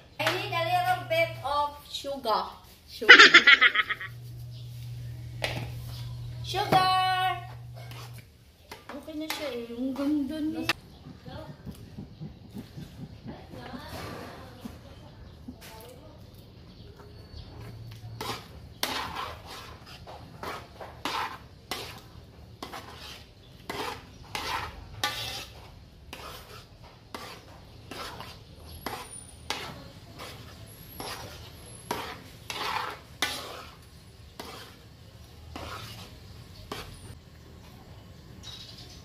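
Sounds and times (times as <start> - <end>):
spoon scraping sauce in a wok: 2.6 - 10.8, 16.4 - 37.7.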